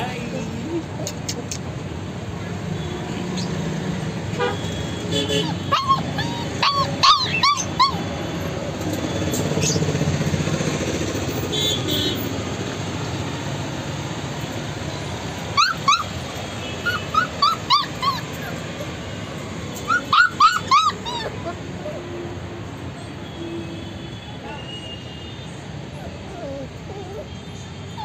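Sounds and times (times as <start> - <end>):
puppies yelping: 5.3 - 8.6, 15.2 - 22.2, 25.9 - 28.0.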